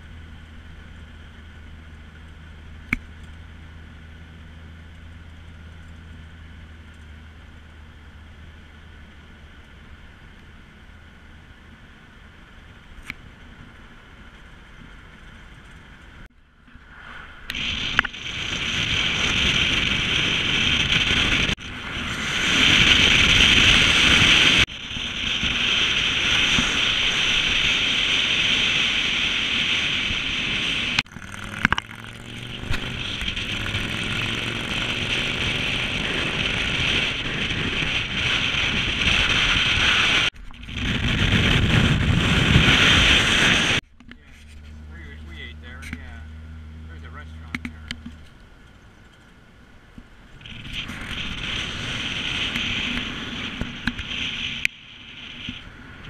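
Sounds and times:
car road and engine noise: 0:00.0 - 0:56.0
wind rushing over microphone: 0:12.8 - 0:46.3, 0:50.0 - 0:56.0.

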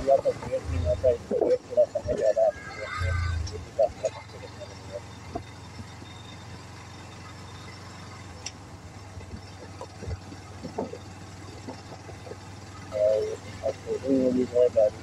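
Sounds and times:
motorcycle engine humming: 0:00.0 - 0:15.0.

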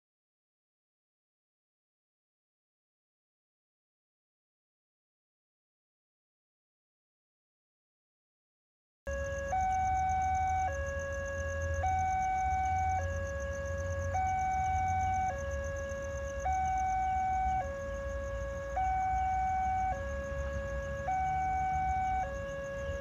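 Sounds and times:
level-crossing two-tone alarm: 0:09.1 - 0:23.0.

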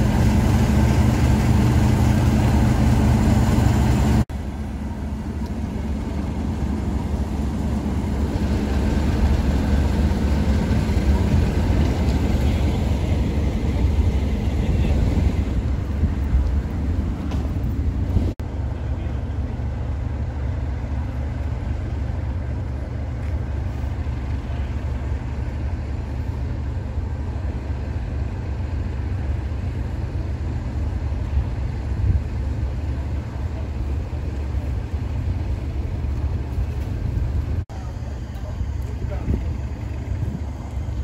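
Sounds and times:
diesel locomotive engine idling: 0:00.0 - 0:41.0
people talking: 0:11.0 - 0:15.6, 0:18.7 - 0:19.6, 0:32.8 - 0:35.8, 0:37.7 - 0:40.4.

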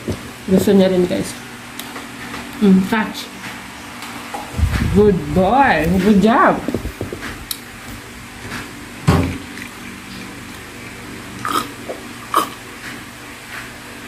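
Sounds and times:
steady low hum: 0:02.7 - 0:14.0
low thump: 0:04.6 - 0:07.2
person swallowing gulps: 0:11.4 - 0:11.7.

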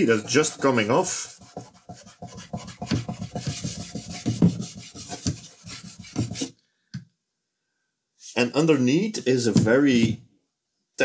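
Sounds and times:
cloth rubbing on wood: 0:00.0 - 0:06.5.

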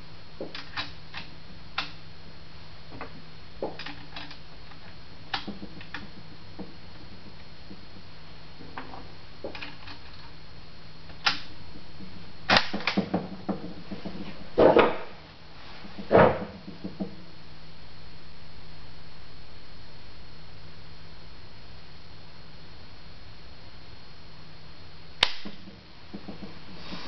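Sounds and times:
small clicks and knocks: 0:03.0 - 0:10.3.

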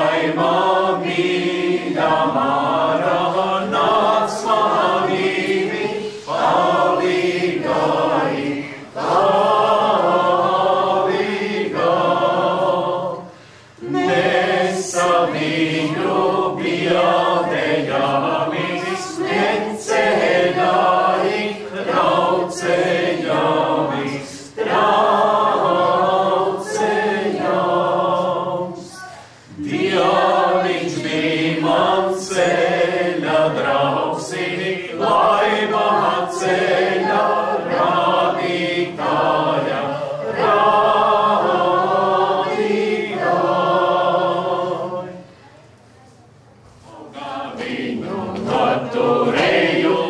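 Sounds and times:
group singing unaccompanied: 0:00.0 - 0:45.3, 0:46.8 - 0:50.0.

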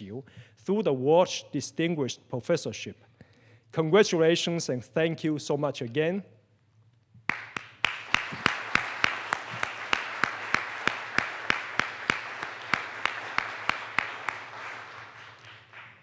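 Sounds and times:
close hand claps: 0:07.2 - 0:16.0
audience applause: 0:07.3 - 0:16.0.

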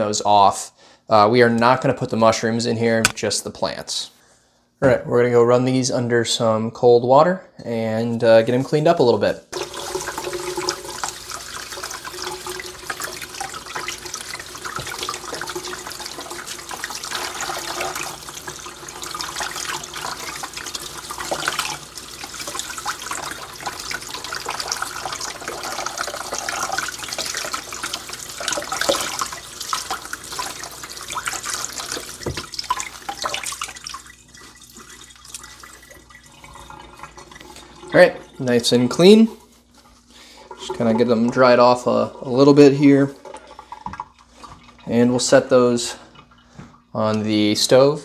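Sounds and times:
tap water splashing on greens: 0:09.6 - 0:37.7.

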